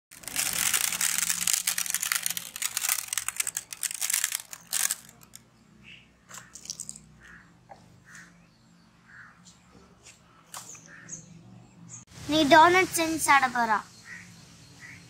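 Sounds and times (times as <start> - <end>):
sprinkles rattling onto metal tray: 0.1 - 5.4.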